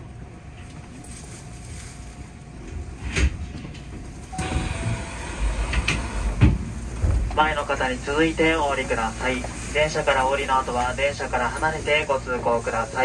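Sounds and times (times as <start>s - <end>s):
electric train rumbling: 0.0s - 13.0s
brief tone: 4.3s - 5.5s.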